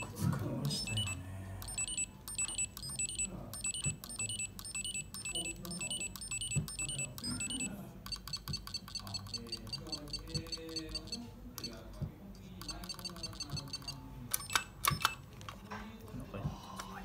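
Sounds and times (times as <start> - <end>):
electronic beeps: 0.0 - 11.8, 12.6 - 15.1.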